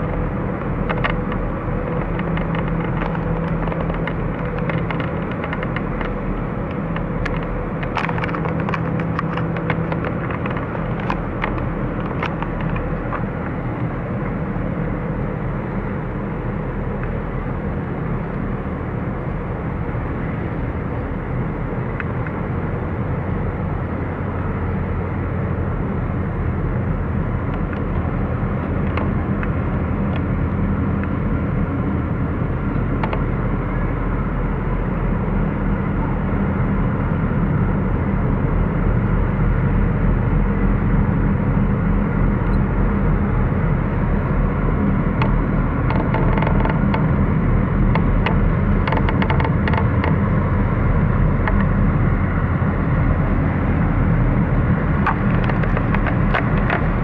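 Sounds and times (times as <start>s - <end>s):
diesel engines droning: 0.0s - 57.0s.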